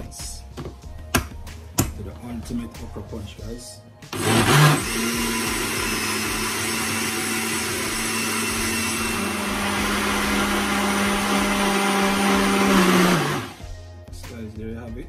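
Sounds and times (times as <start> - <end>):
electric blender running: 4.1 - 13.7.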